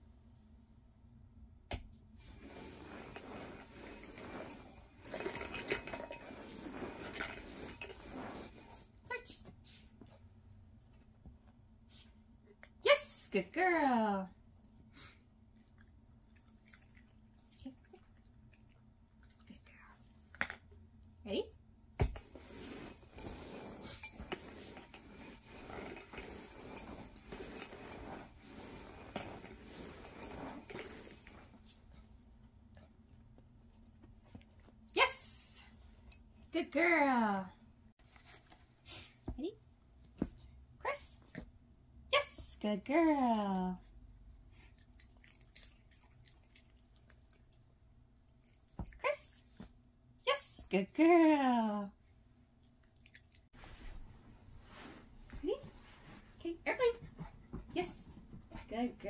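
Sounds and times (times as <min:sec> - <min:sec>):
pots scraping across carpet: 0:02.2 - 0:12.2, 0:22.0 - 0:36.9, 0:37.9 - 0:39.2, 0:53.5 - 0:59.0.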